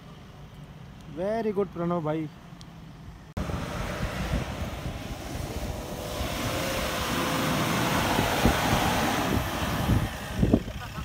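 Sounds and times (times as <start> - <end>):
diesel engine roaring: 2.4 - 11.0.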